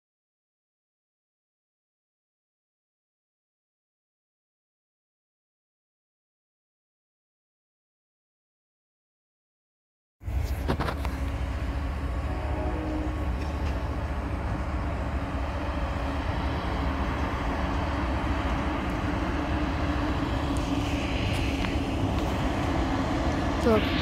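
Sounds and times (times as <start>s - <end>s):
steady hum: 10.2s - 24.0s
train wheels rumbling on rails: 10.2s - 24.0s.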